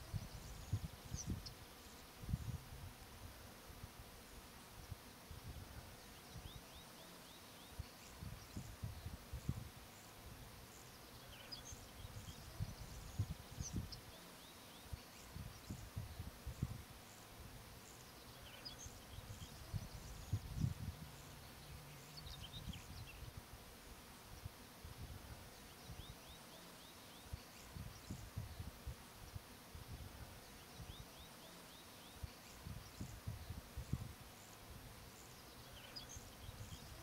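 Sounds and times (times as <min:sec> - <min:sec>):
wind gusts on microphone: 0:00.0 - 0:01.6, 0:02.2 - 0:04.2, 0:07.8 - 0:10.5, 0:11.8 - 0:14.1, 0:14.9 - 0:17.7, 0:19.0 - 0:26.1, 0:27.6 - 0:31.1, 0:32.2 - 0:35.0
small birds chirping: 0:00.0 - 0:02.7, 0:04.2 - 0:29.6, 0:30.3 - 0:37.0.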